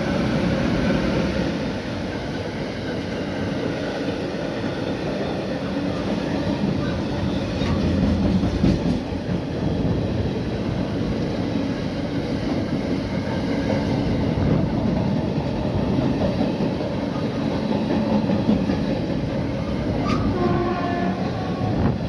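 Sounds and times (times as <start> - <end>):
freight wagons rumbling on rails: 0.0 - 22.0.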